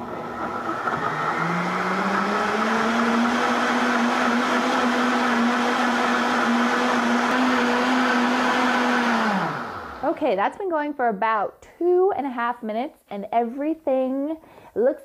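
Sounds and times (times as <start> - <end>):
blender motor running: 0.0 - 10.2.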